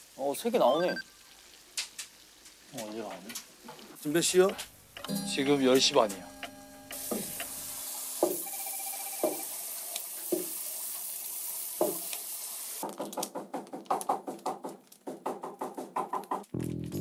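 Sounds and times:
food sizzling in deep-fry oil: 0.0 - 12.8.

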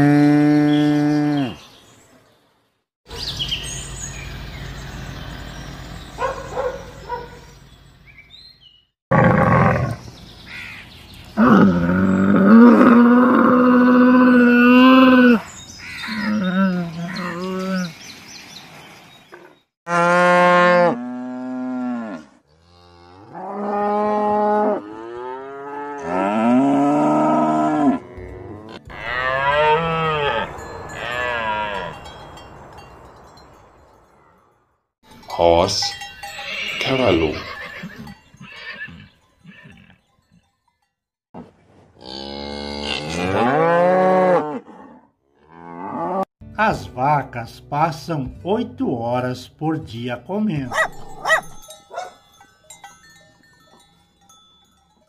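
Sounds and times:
cattle mooing: 11.4 - 15.4, 19.9 - 32.0.

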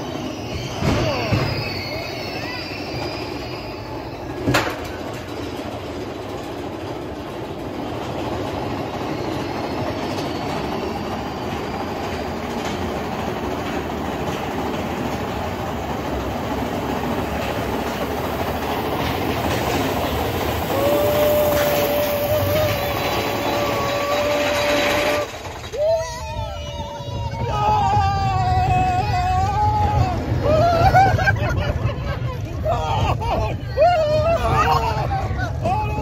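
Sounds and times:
roller coaster cars rattling: 0.0 - 36.0
rider yelling: 20.7 - 25.3.

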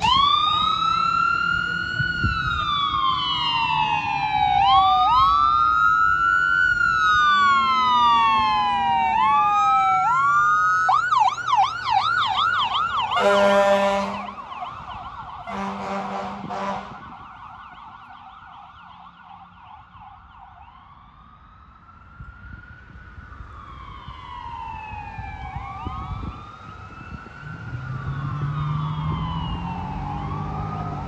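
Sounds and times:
ambulance siren: 0.0 - 31.0
vehicle horn: 13.1 - 14.4, 15.5 - 17.1.

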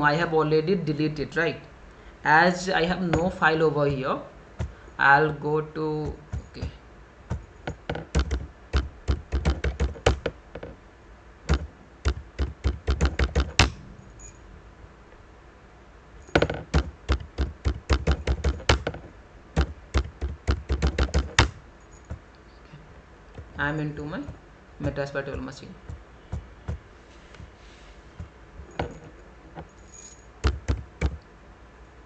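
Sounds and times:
keyboard key clicks: 30.4 - 31.2.

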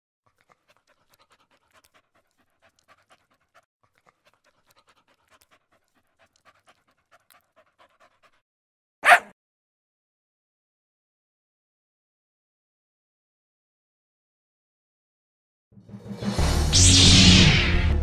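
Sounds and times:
dog panting: 0.3 - 8.4.

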